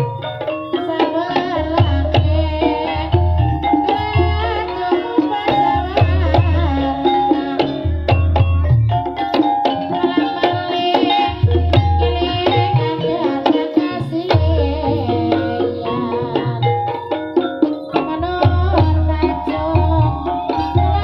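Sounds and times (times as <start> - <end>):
gamelan percussion ringing: 0.0 - 21.0.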